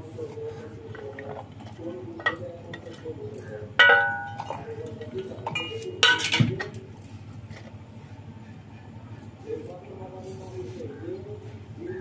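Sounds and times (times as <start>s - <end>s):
steel plate and jar clanking: 3.8s - 4.8s.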